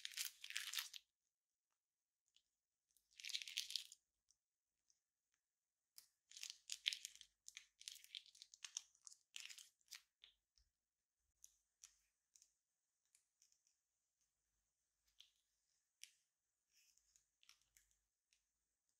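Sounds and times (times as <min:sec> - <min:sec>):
plastic piping bag crinkling: 0:00.0 - 0:01.0.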